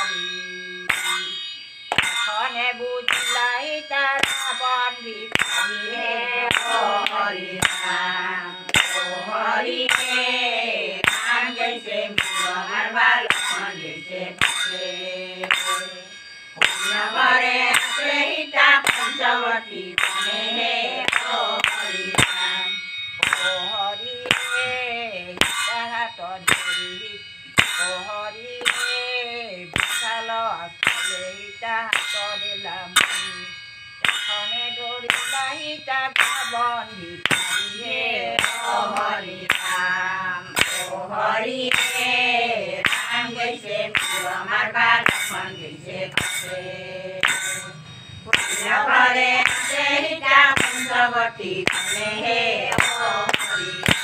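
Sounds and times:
women singing devotional chant: 0.0s - 1.3s, 1.9s - 54.0s
brass hand cymbals: 0.0s - 54.0s
hand clapping: 0.8s - 1.3s, 1.9s - 2.4s, 3.1s - 3.5s, 4.2s - 4.6s, 5.3s - 5.8s, 6.4s - 8.0s, 8.7s - 10.4s, 11.0s - 13.8s, 14.4s - 14.8s, 15.4s - 16.0s, 16.6s - 19.3s, 20.0s - 22.6s, 23.2s - 23.6s, 24.2s - 25.8s, 26.5s - 26.9s, 27.6s - 28.0s, 28.6s - 29.0s, 29.7s - 30.1s, 30.8s - 31.3s, 31.9s - 32.3s, 33.0s - 33.4s, 34.0s - 34.4s, 35.1s - 36.6s, 37.2s - 40.0s, 40.6s - 45.5s, 46.1s - 46.6s, 47.2s - 54.0s.

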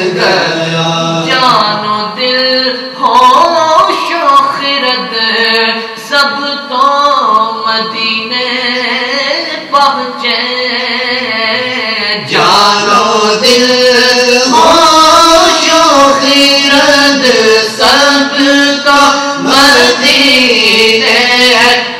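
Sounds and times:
men singing together: 0.0s - 1.8s, 10.8s - 21.9s.

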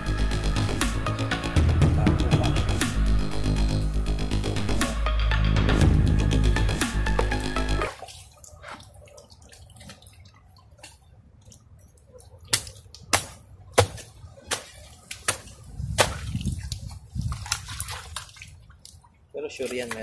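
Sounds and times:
background music: 0.0s - 8.0s
hands squelching in wet mud: 7.8s - 20.0s.

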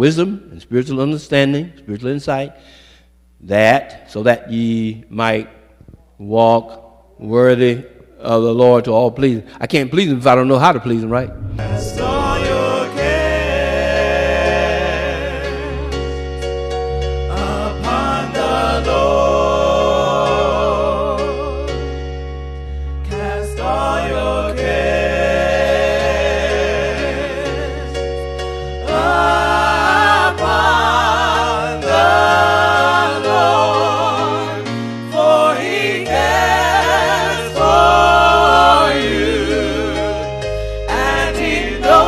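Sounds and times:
keyboard and bass accompaniment: 10.9s - 42.0s
voices singing gospel: 11.0s - 16.1s, 17.3s - 21.9s, 23.1s - 28.1s, 28.8s - 42.0s.

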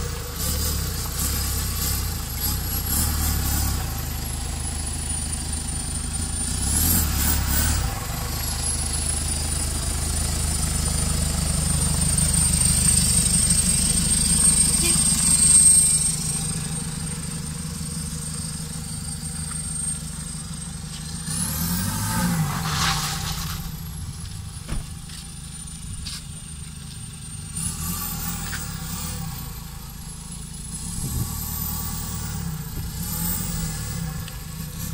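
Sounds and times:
diesel engine accelerating: 0.0s - 34.9s
thin high turbo whistle: 14.3s - 16.4s.

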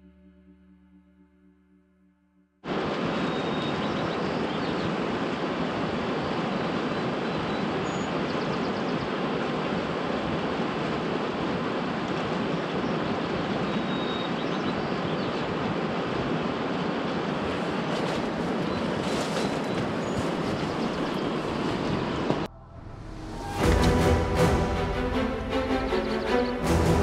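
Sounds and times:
steady rushing outdoor noise: 2.6s - 22.5s.

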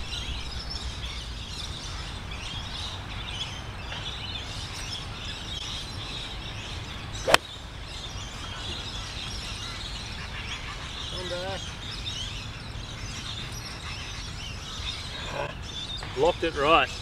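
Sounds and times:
birds chirping: 0.0s - 17.0s
golf club striking ball: 7.3s - 7.5s.

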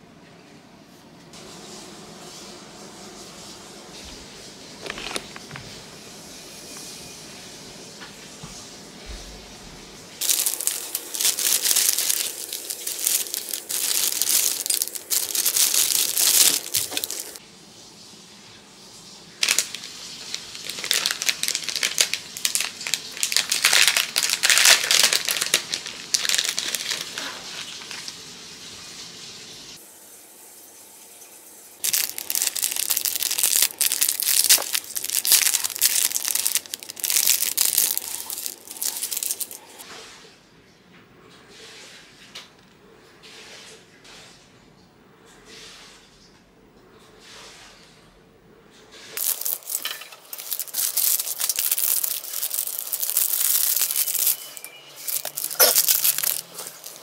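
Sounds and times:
plastic packaging crinkling: 4.8s - 5.6s, 10.2s - 17.4s, 19.4s - 28.2s, 31.8s - 39.8s, 49.2s - 57.0s.

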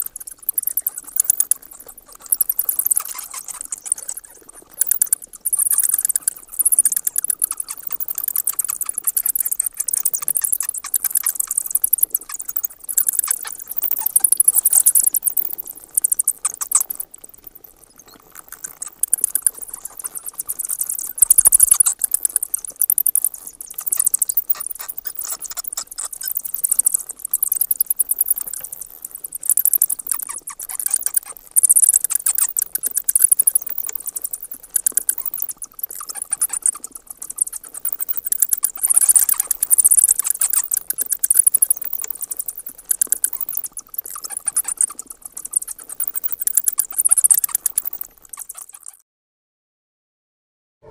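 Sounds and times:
bats chattering: 0.0s - 49.0s.

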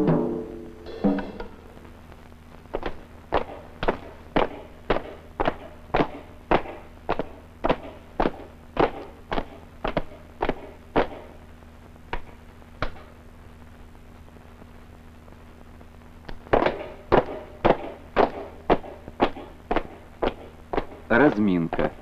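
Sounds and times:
boots marching in step: 16.3s - 22.0s.

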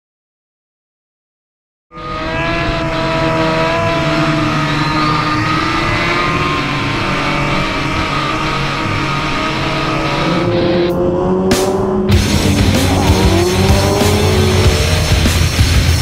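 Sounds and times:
motorcycle engines running: 1.9s - 16.0s.

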